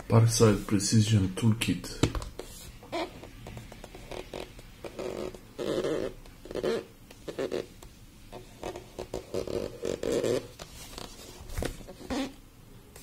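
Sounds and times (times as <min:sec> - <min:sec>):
fingers rubbing cardboard box: 0:03.8 - 0:07.8, 0:08.4 - 0:11.2.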